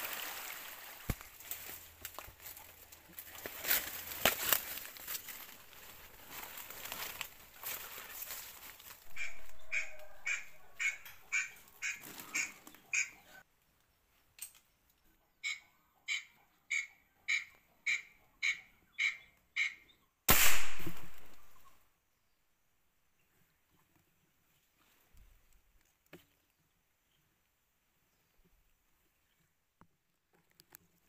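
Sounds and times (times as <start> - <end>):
squirrel calling: 9.0 - 13.4
rifle shot: 20.3 - 21.6.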